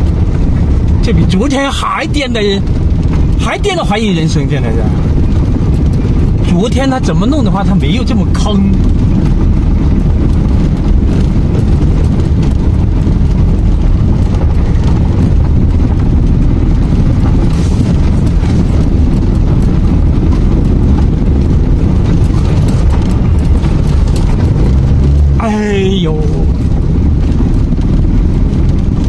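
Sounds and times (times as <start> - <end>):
tyres rumbling on gravel road: 0.0 - 29.0
small clicks and rattles: 2.6 - 25.4.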